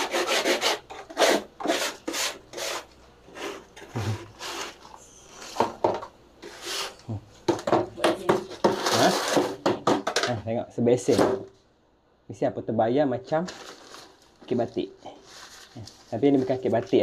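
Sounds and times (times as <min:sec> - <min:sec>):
scraping on concrete floor: 0:00.0 - 0:10.3.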